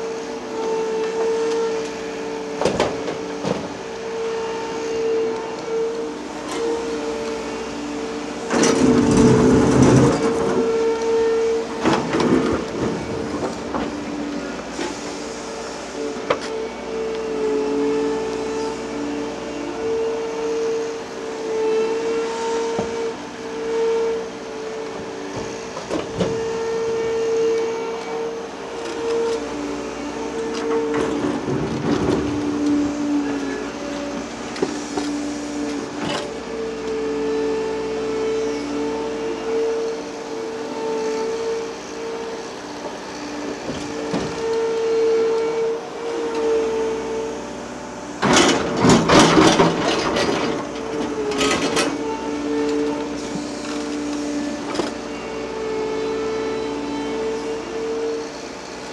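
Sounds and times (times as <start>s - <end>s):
excavator engine whining: 0.0s - 58.9s
loud rumbling clatter: 8.5s - 10.6s.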